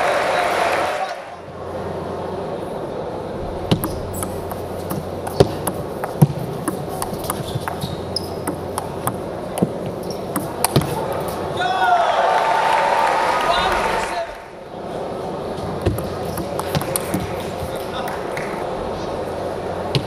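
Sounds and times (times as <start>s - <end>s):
table tennis ball clicking: 3.7s - 11.4s, 15.8s - 18.5s.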